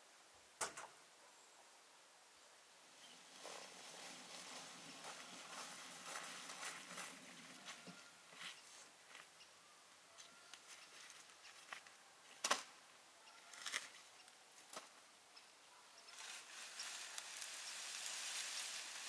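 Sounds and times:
rake scraping dry leaves: 3.0 - 8.9, 16.0 - 19.0.

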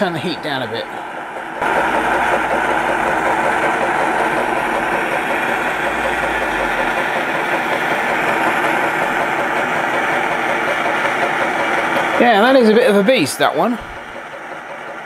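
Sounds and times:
engine regular beat: 0.0 - 15.0
gas burner hissing: 0.0 - 15.0.

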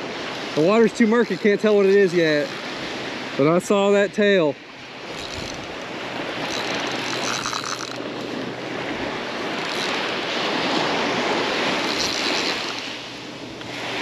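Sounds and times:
surf washing onto beach: 0.0 - 14.0
fishing reel clicking rapidly: 0.6 - 2.7, 5.1 - 8.1, 9.5 - 10.2, 11.8 - 12.8
wind on microphone: 5.0 - 13.1.

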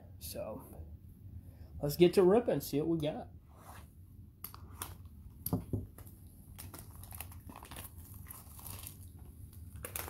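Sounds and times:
plastic shrink-wrap crinkling: 5.9 - 10.0.

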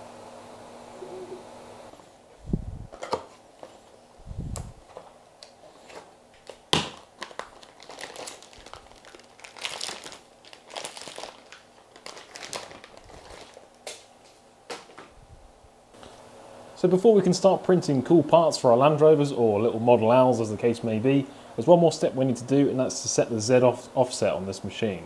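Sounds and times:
plastic wrapping crinkling: 5.9 - 15.1.

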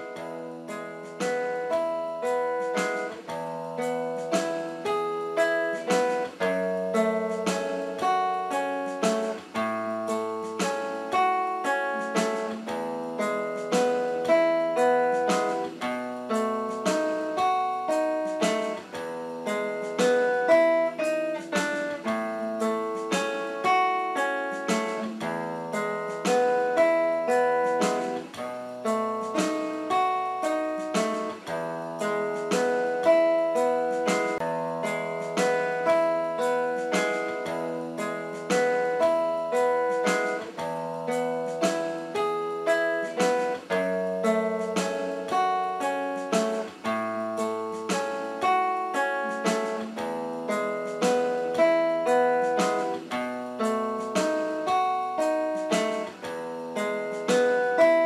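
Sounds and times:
plucked string notes: 0.0 - 58.0.

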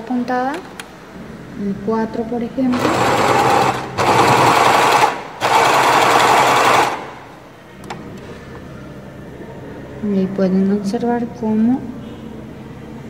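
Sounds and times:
sewing machine stitching: 2.7 - 7.4.

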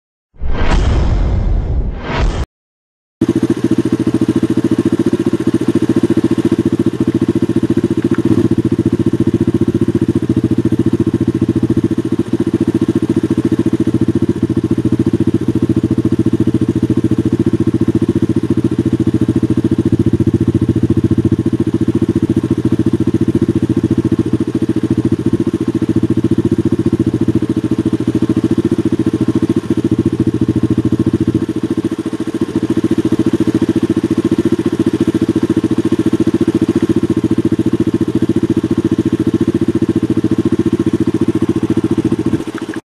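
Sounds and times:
combine harvester engine drone: 39.4 - 42.8.

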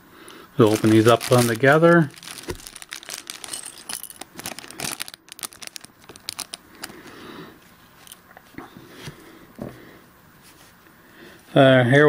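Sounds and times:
plastic bags crinkling: 0.3 - 7.3
small plastic pieces clicking: 0.8 - 7.0.

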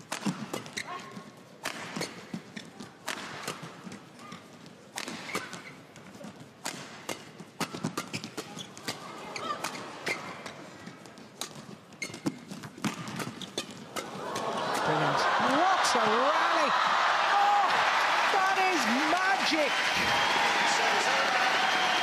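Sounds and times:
rackets hitting shuttlecock: 0.0 - 4.0, 4.9 - 15.1
shoes squeaking: 0.3 - 3.0, 3.6 - 6.6, 7.2 - 14.7.

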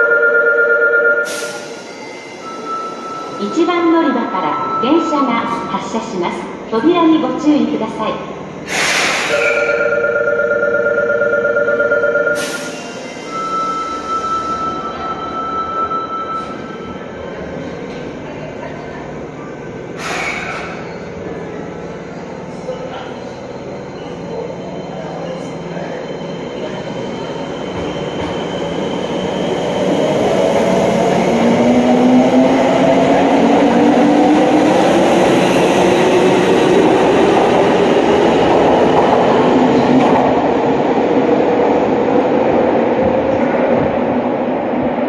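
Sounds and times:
train wheels rumbling on rails: 16.3 - 45.0.

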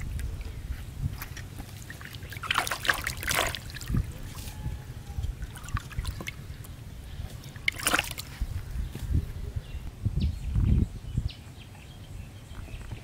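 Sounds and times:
fish splashing in bucket of water: 1.1 - 4.6, 5.4 - 6.4, 7.3 - 8.4.

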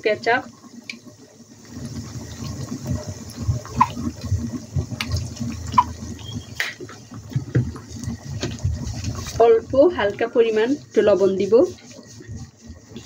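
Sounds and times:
spatula stirring in frying pan: 0.8 - 13.0.

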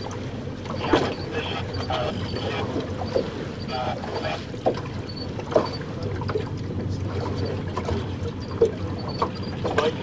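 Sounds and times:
boat motor humming: 0.0 - 10.0
water splashing against hull: 0.0 - 10.0.

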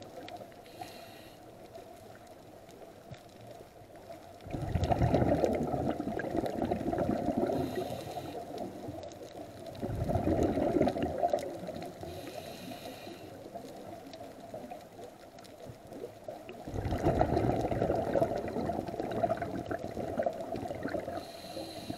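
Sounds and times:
hissing regulator inhalation: 0.7 - 1.4, 7.3 - 8.7, 12.0 - 13.5, 20.9 - 21.9
bubbles bursting from exhalation: 4.4 - 7.8, 9.8 - 11.8, 16.6 - 21.2.

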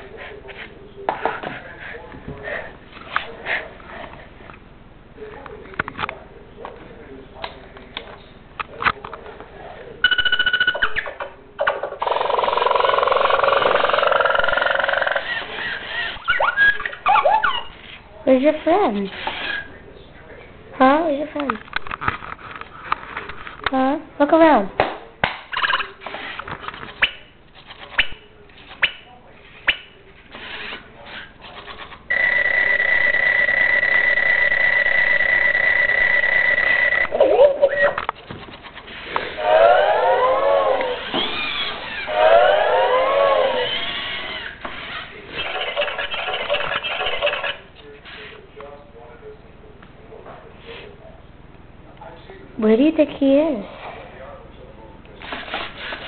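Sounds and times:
toy robot electronic beep: 10.1 - 11.1
toy robot electronic tone: 10.1 - 11.1, 12.5 - 15.4, 32.1 - 38.0
toy robot buzzing whir: 12.0 - 16.2, 31.6 - 37.1, 39.7 - 47.6.

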